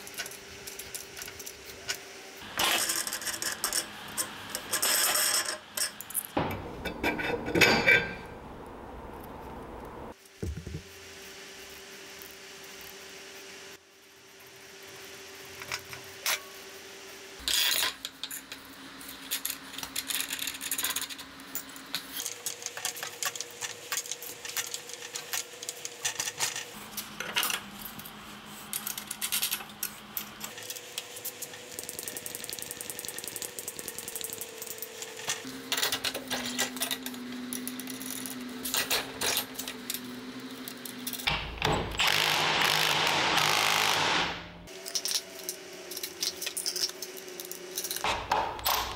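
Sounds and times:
power tool running loudly: 41.9 - 44.6.

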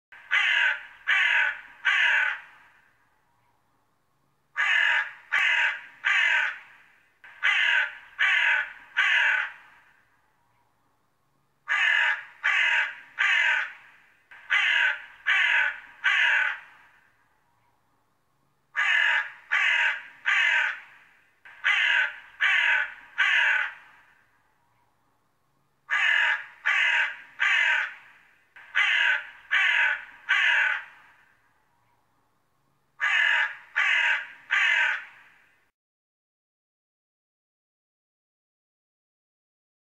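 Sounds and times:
crow cawing: 0.2 - 2.9, 4.6 - 10.1, 11.7 - 17.2, 18.8 - 24.3, 25.9 - 31.4, 33.0 - 35.6.

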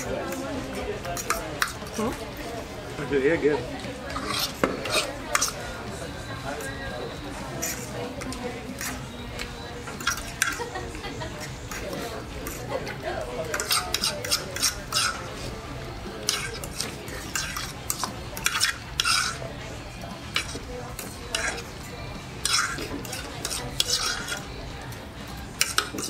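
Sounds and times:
metal forks scraping plates: 0.0 - 2.1, 4.1 - 5.7, 7.5 - 9.2, 9.8 - 10.7, 13.4 - 19.6, 20.3 - 24.6, 25.6 - 26.0.

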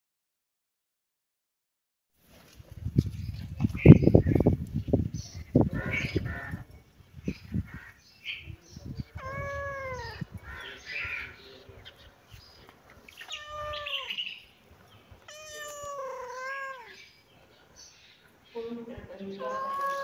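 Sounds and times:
cat meowing: 9.1 - 10.5, 13.1 - 14.4, 15.2 - 17.1, 19.4 - 20.0.

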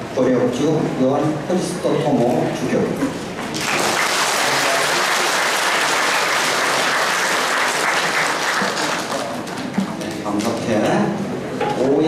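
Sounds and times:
congregation applauding: 3.5 - 10.2.

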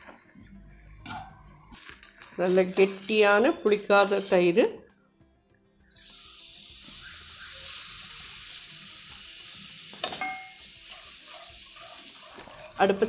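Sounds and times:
curd sizzling in hot oil: 5.9 - 13.0.

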